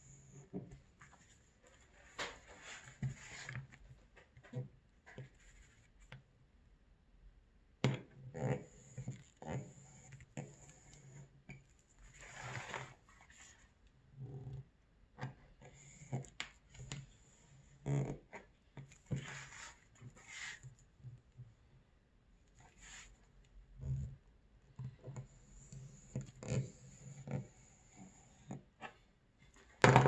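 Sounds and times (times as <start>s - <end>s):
knife scraping leather: 19.0s - 20.7s.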